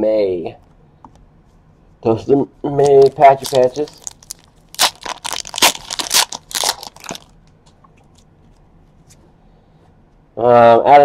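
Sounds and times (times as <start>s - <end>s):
card packaging crackling: 2.8s - 7.4s.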